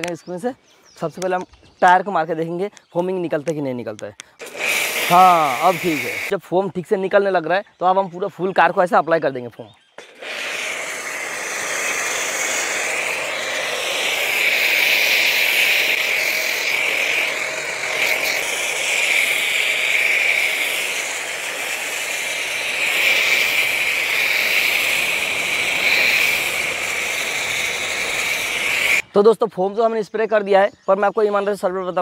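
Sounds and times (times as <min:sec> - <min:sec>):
foam spraying onto car: 0:04.4 - 0:06.3, 0:10.0 - 0:29.0
pressure washer running: 0:04.4 - 0:06.3, 0:10.0 - 0:29.0.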